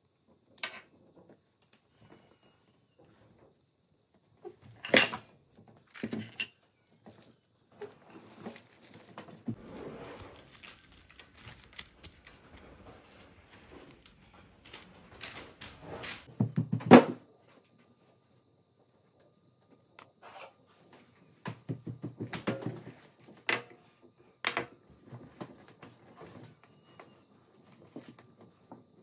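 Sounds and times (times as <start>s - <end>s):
soft rustle: 7.1s - 16.3s
objects knocking and clattering: 10.2s - 17.3s, 21.5s - 25.6s.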